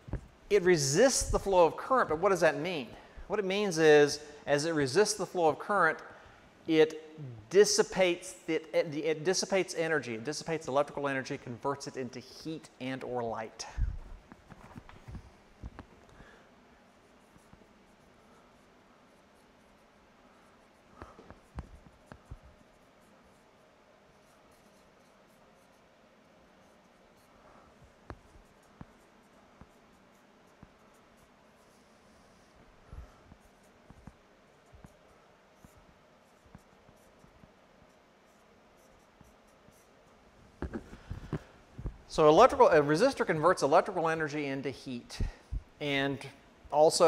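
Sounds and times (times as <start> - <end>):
marker squeaking on whiteboard: 24.1 - 25.9, 35.6 - 41.5.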